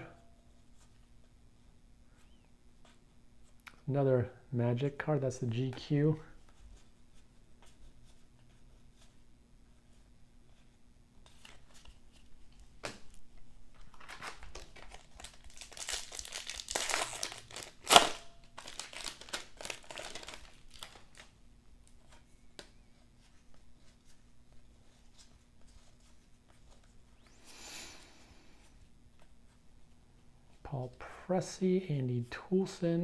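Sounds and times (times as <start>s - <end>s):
foil wrapper tearing and crinkling: 13.9s - 21.3s.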